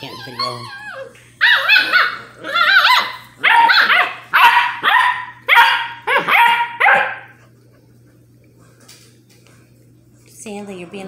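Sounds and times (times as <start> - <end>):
puppy yapping: 0.0 - 7.4.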